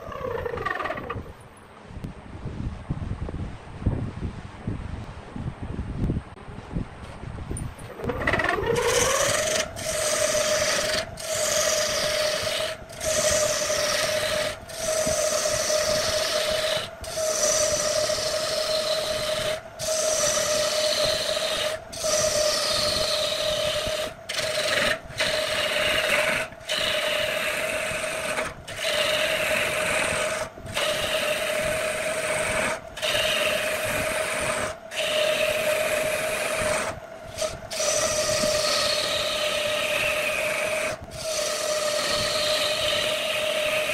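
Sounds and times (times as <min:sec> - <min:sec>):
wood lathe motor hum: 0:00.0 - 0:01.3, 0:07.9 - 0:43.9
chisel scraping spinning wood: 0:00.0 - 0:01.4, 0:07.8 - 0:43.9.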